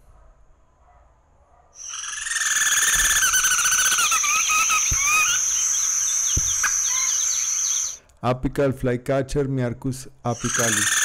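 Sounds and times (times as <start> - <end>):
bird calling with rippling notes: 1.8 - 8.0, 10.4 - 11.0
high-pitched insect drone: 1.8 - 8.0, 10.4 - 11.0.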